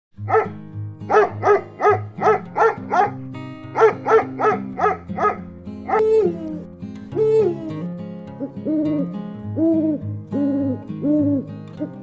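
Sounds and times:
background music: 0.2 - 12.0
dog barking: 0.3 - 6.1.

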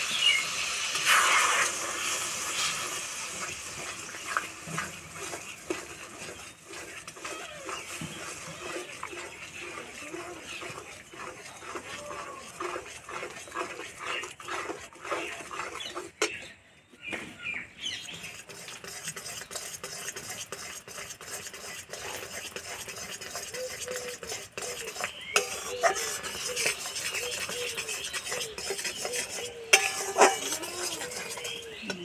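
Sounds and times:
syrup hissing and bubbling: 0.0 - 16.2, 18.2 - 32.0
spatula scraping metal pan: 0.0 - 16.5, 18.0 - 32.0
spatula knocking pan: 24.5 - 32.0.

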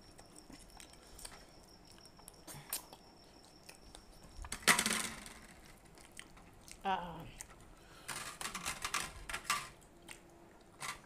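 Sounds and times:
wet clicks and chewing: 0.0 - 4.5, 5.9 - 7.6, 9.8 - 10.8.

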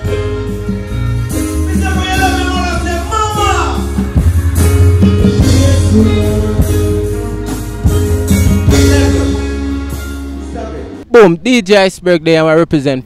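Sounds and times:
dancehall music over sound system: 1.3 - 9.8.

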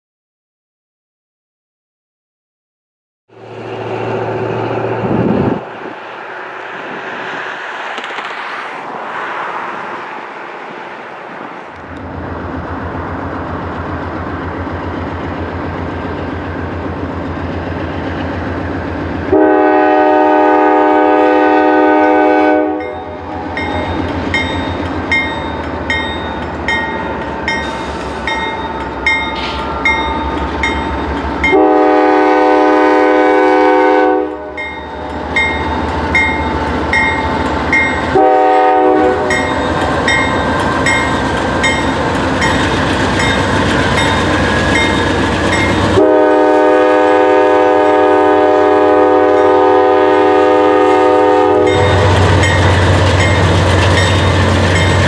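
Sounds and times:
diesel locomotive rumble: 3.3 - 55.0
locomotive horn blasts: 19.3 - 23.9, 31.4 - 34.7, 37.0 - 39.5, 45.8 - 52.6.

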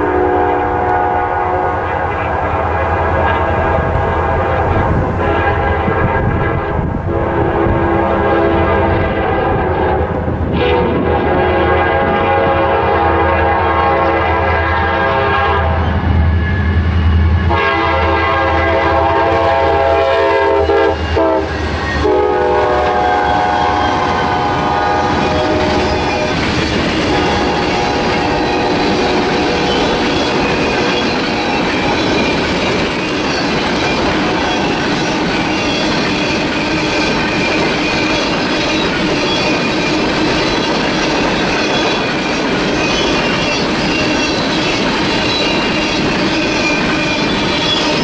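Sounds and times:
locomotive air horn blasts: 0.0 - 15.9, 17.4 - 26.4, 27.1 - 30.4
train wheels clattering on rails: 16.0 - 48.0.

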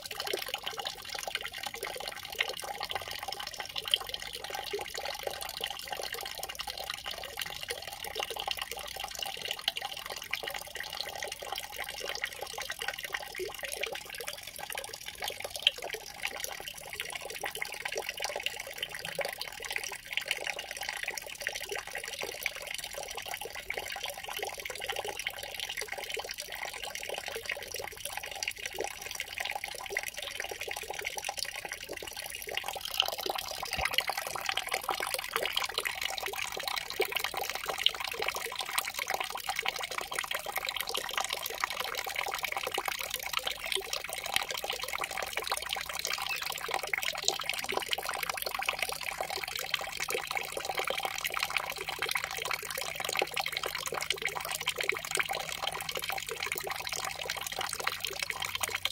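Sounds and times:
trickling flowing water: 0.0 - 58.9.

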